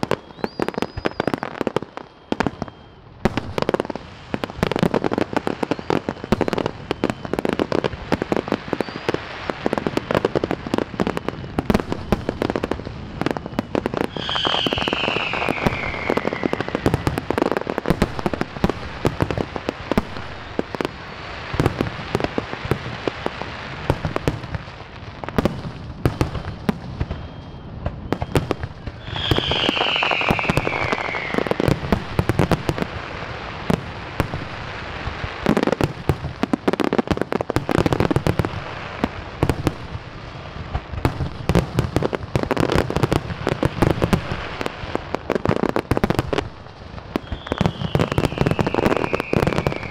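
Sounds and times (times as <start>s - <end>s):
whistling firework shell: 0.0s - 4.0s, 4.6s - 7.8s, 8.5s - 9.2s, 11.2s - 19.3s, 25.4s - 32.8s, 47.1s - 49.9s
fireworks bangs and crackling: 0.0s - 49.9s.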